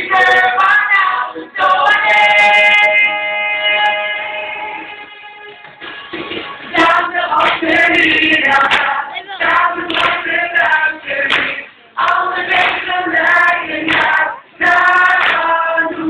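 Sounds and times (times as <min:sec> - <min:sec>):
group singing: 0:00.0 - 0:05.3, 0:06.6 - 0:16.0
handclaps: 0:07.4 - 0:07.8, 0:08.5 - 0:10.3, 0:11.2 - 0:12.9, 0:13.8 - 0:14.3, 0:15.1 - 0:15.6.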